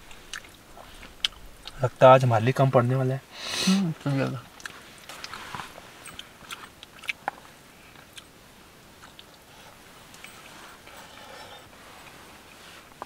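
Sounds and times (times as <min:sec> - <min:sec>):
people chewing: 0:00.1 - 0:01.8, 0:03.8 - 0:08.3, 0:09.0 - 0:12.2.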